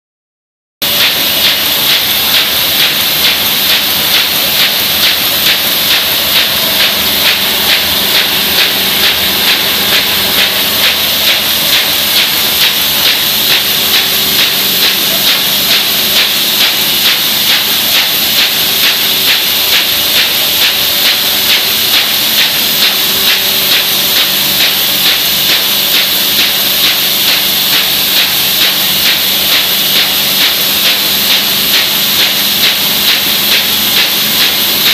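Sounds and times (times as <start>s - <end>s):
fast mechanical clatter: 0.8s - 34.9s
machine hiss: 0.8s - 34.9s.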